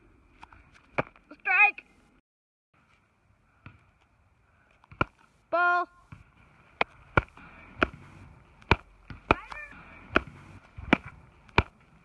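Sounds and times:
ball smacking into leather glove: 0.9 - 1.2, 4.8 - 5.3, 6.1 - 12.0.

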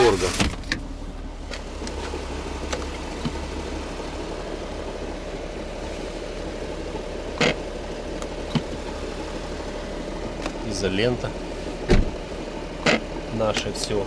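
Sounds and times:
car engine idling: 0.0 - 14.0
fuel filler flap clicks: 0.4 - 3.4, 8.2 - 8.8, 10.4 - 10.6.

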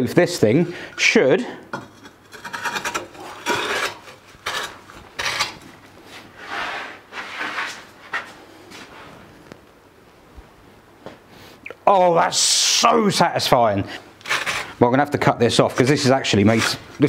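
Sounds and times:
metal tube scraping over pipe: 1.8 - 5.6, 14.2 - 14.8.

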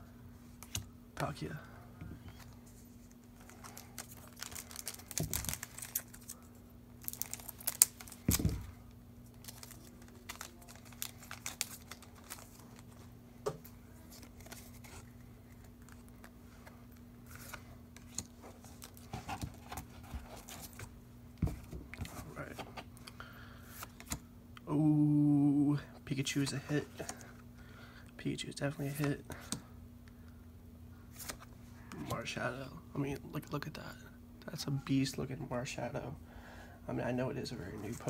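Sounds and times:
foil wrapper crinkling and tearing: 3.4 - 8.5, 9.3 - 13.0.

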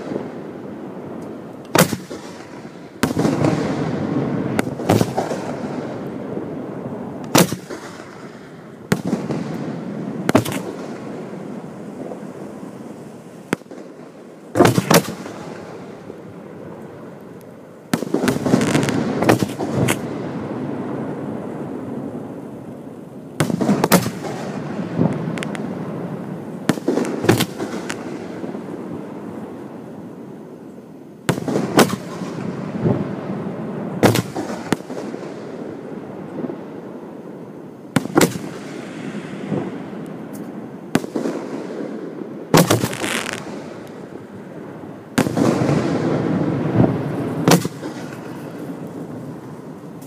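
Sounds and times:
firework crackle: 0.0 - 50.0
firework shells bursting: 17.3 - 20.4, 26.6 - 28.7, 42.5 - 44.2, 45.1 - 50.0.

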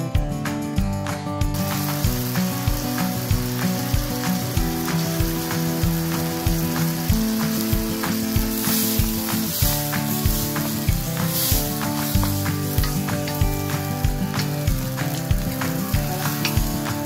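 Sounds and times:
background music with steady beat: 0.0 - 17.0
chicken sizzling in a wok: 1.6 - 17.0
wooden spatulas stirring in a wok: 7.6 - 14.4.

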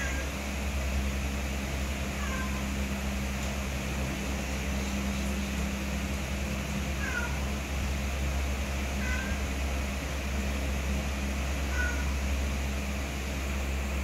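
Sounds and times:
cat meowing: 0.0 - 0.3, 2.1 - 2.7, 6.9 - 7.6, 9.0 - 9.5, 11.7 - 12.2
steady low hum: 0.0 - 14.0.

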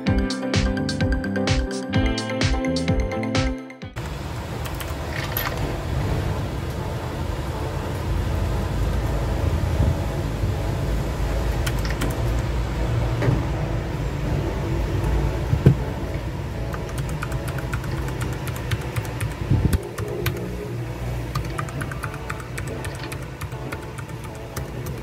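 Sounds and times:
steady low rumble: 4.0 - 25.0
mechanical keyboard typing: 11.6 - 12.5, 16.7 - 20.6, 21.3 - 25.0.

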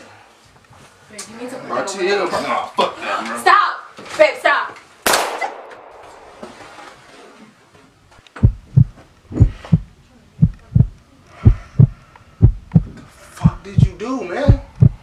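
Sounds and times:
heartbeat thumps: 8.4 - 15.0.

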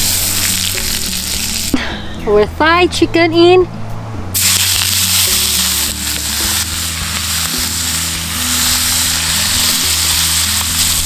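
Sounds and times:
chicken sizzling in a pan: 0.0 - 1.7, 4.4 - 11.0.

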